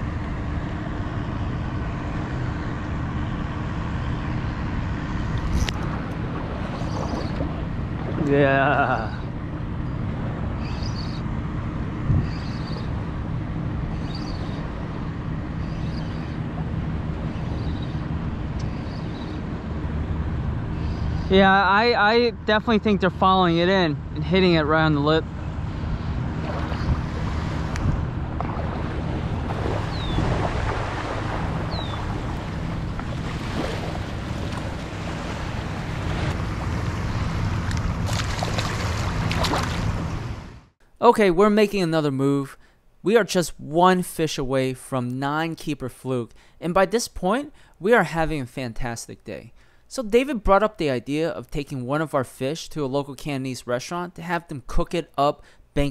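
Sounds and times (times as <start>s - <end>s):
wind buffeting microphone: 0.0s - 8.6s, 9.2s - 21.3s, 24.0s - 40.5s
splashes in shallow water: 5.8s - 8.3s, 28.4s - 40.2s
small waves washing on sand: 28.4s - 40.1s.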